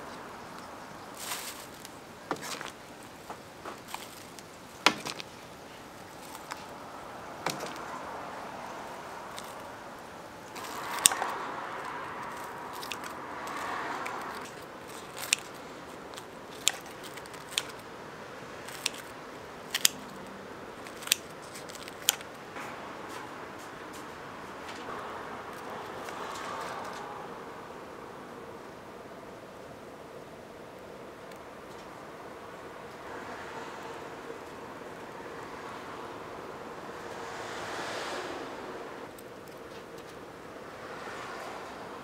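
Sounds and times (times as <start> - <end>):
rustling noise: 0.0 - 6.8, 8.8 - 17.9.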